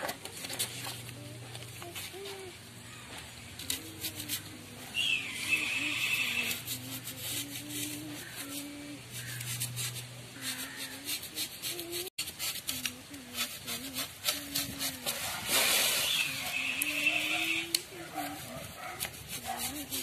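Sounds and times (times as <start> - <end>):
blade squeaking in foam: 5.2 - 8.6, 9.2 - 20.0
knife cutting foam: 9.2 - 16.6, 17.7 - 20.0.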